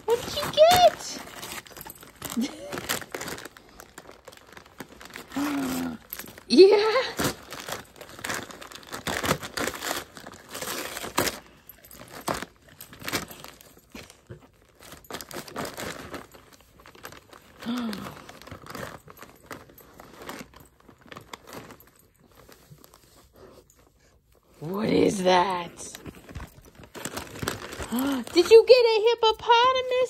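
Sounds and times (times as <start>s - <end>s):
wrapping paper crinkling and tearing: 0.0s - 30.0s.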